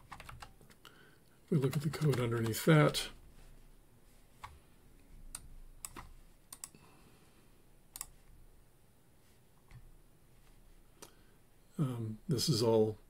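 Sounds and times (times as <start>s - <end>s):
computer mouse and key clicks: 0.0s - 0.9s, 1.6s - 3.0s, 5.3s - 6.8s, 7.9s - 8.2s.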